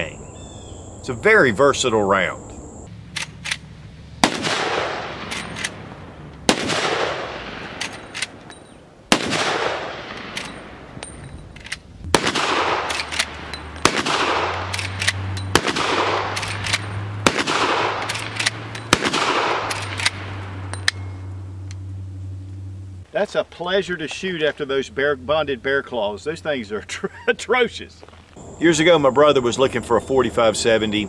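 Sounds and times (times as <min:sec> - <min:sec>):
rifle shots with rolling echo: 0:03.1 - 0:08.4, 0:09.1 - 0:11.0, 0:12.0 - 0:20.7.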